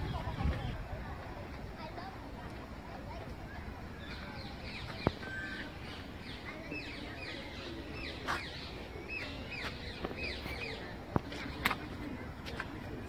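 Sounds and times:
small birds chirping: 3.5 - 13.0.

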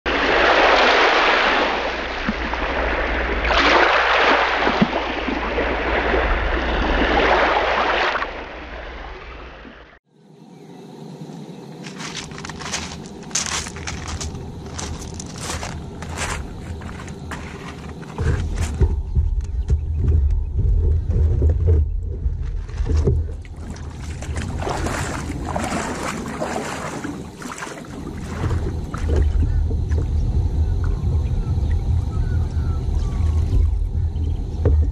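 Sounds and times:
surf washing up on beach: 0.1 - 9.8, 23.8 - 29.2
kayak hull scraping on gravel: 11.8 - 29.6.

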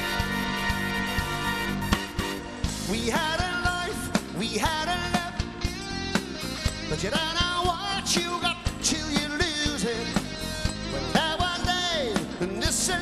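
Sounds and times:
drums beating: 0.0 - 13.0
guitar and keyboards: 0.0 - 13.0
man singing: 2.8 - 5.8, 6.8 - 13.0.

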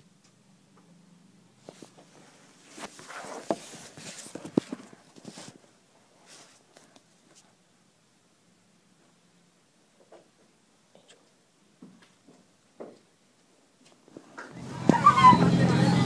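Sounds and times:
phone rustling against microphone: 1.6 - 7.4.

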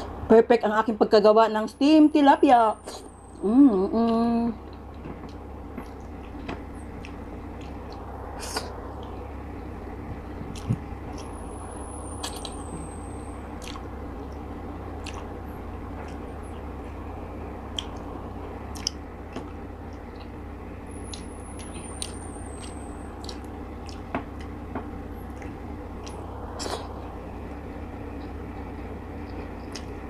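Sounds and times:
low background hum: 0.0 - 30.0
soft chewing: 4.0 - 9.2, 10.4 - 11.4, 13.5 - 16.7, 17.7 - 18.1, 18.7 - 20.4, 21.0 - 24.6, 25.2 - 30.0
lip smacks and mouth clicks: 7.0 - 9.2, 10.5 - 11.4, 12.2 - 12.6, 13.6 - 14.4, 15.0 - 15.3, 17.7 - 18.1, 18.7 - 20.3, 21.1 - 24.6, 25.3 - 26.9, 29.2 - 30.0.

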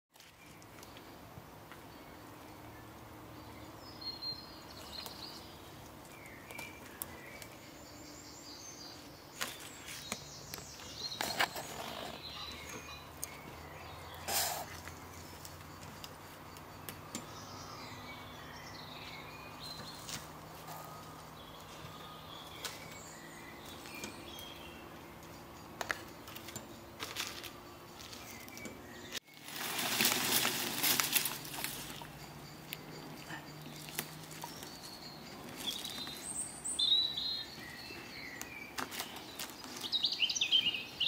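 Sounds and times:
birds chirping: 0.2 - 41.0.

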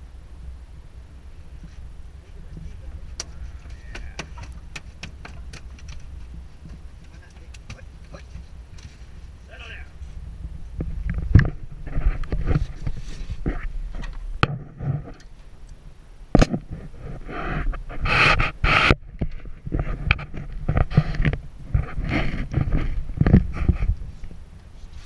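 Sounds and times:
wind buffeting microphone: 0.0 - 15.3, 16.2 - 24.8
hissing rush: 0.8 - 10.6
knocks and scrapes on boat deck: 2.6 - 9.3, 10.8 - 15.3, 16.4 - 25.0.

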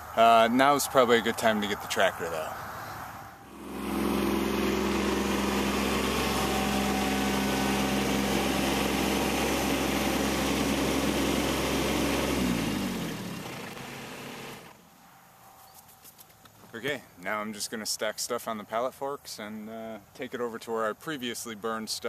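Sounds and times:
tractor diesel engine running: 3.4 - 14.8.

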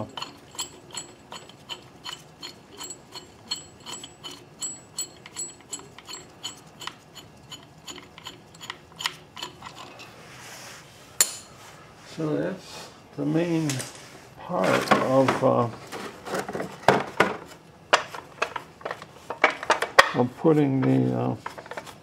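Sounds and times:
ratchet handle clicking: 0.0 - 9.9.

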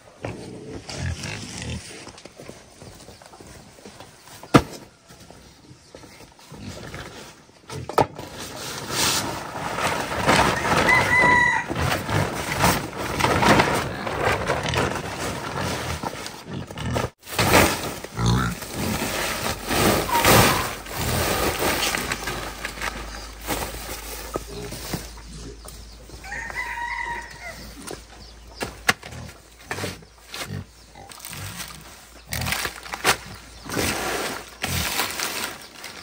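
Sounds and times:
chickens clucking and crowing: 9.9 - 13.1, 18.2 - 34.2.

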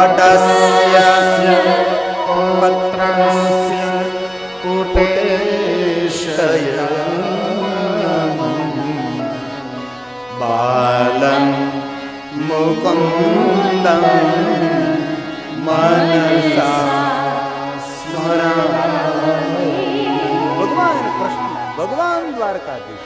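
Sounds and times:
instrumental drone: 0.0 - 23.0
man singing devotional song: 0.0 - 23.0.

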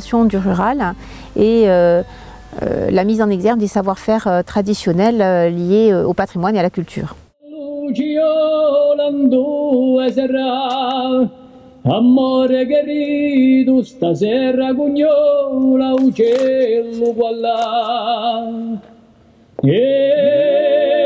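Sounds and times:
chant-like singing: 7.4 - 18.9, 19.6 - 21.0.

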